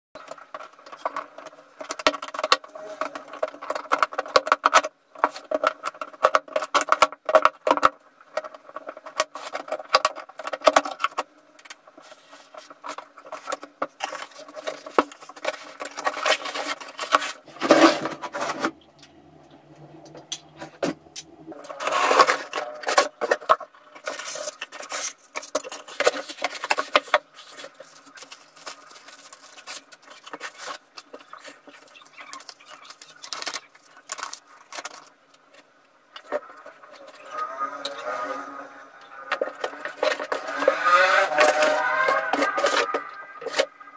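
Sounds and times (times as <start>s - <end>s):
plastic wrapping rustling: 0.2s - 43.9s
cardboard flaps scraping: 12.0s - 21.2s.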